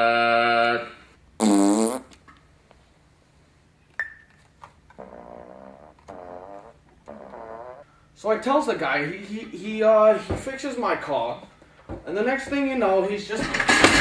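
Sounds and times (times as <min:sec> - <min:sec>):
buzzy note with dipping pitch: 0:05.0 - 0:07.8.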